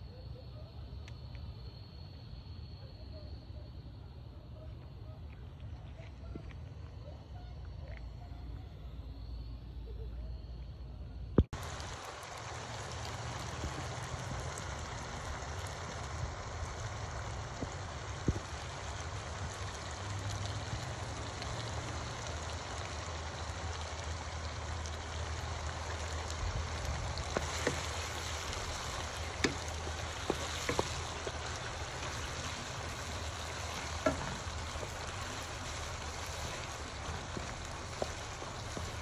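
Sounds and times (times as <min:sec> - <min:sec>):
sauce bubbling and sizzling: 0:11.4 - 0:39.0.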